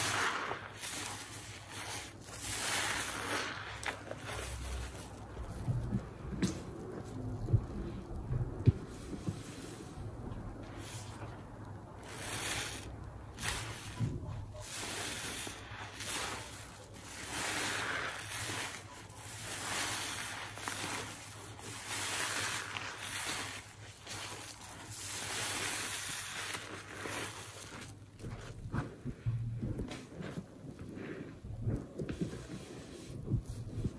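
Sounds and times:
wet sponge squelching: 0:00.0 - 0:33.9.

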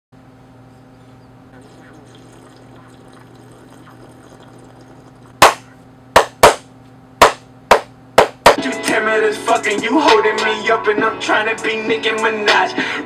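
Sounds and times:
low steady hum: 0:00.2 - 0:08.6
sharp hand claps: 0:07.2 - 0:08.6.

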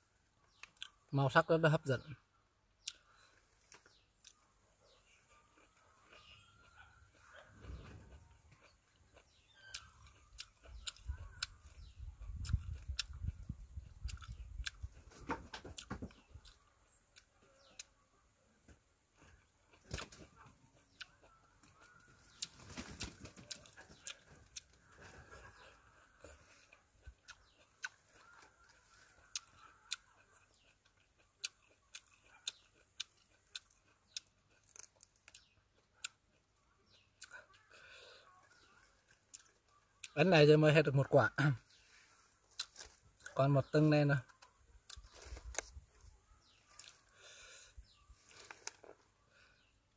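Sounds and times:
person chewing wetly: 0:00.5 - 0:01.0, 0:02.8 - 0:15.0, 0:15.8 - 0:18.0, 0:19.0 - 0:22.6, 0:23.4 - 0:40.2, 0:41.7 - 0:43.4, 0:44.2 - 0:49.7
soft chewing thumps: 0:02.8 - 0:18.0.

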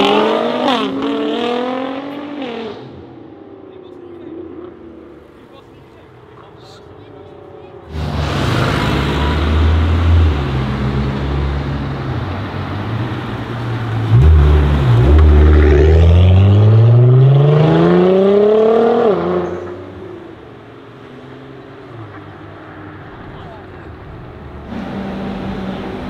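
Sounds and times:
car engine revving and accelerating: 0:00.0 - 0:03.6, 0:07.2 - 0:20.4, 0:24.5 - 0:26.0.

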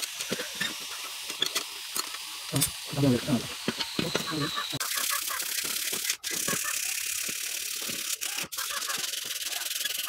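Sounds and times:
sandpaper rubbing on metal: 0:02.6 - 0:10.0.

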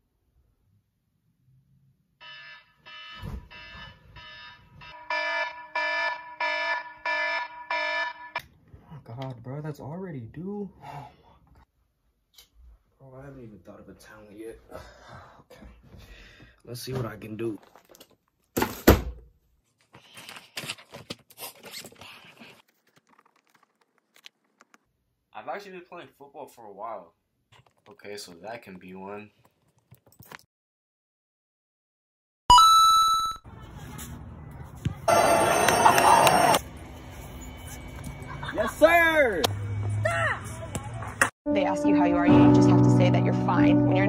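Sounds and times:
alarm tone beeping: 0:02.2 - 0:08.4
paper rustling and shuffling: 0:19.6 - 0:24.8.

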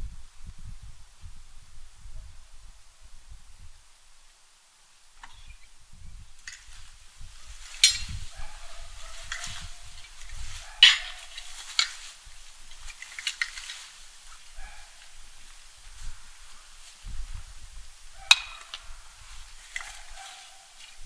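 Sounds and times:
rake scratching over dry leaves: 0:06.4 - 0:21.0
sharp knocks of handling: 0:09.2 - 0:12.1.

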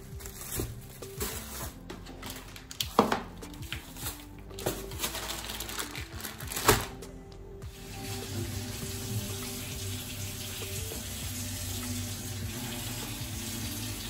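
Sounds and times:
plastic bag crinkling: 0:00.0 - 0:07.1
background music: 0:00.0 - 0:14.0.

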